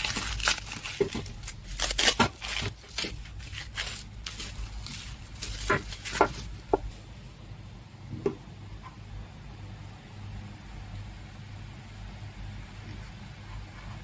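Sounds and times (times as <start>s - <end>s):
bubble wrap crinkling: 0.0s - 7.3s.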